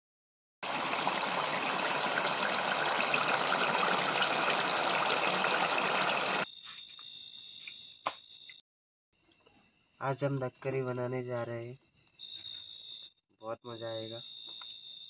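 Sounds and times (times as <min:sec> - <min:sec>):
curry bubbling in a pot: 0:00.6 - 0:06.4.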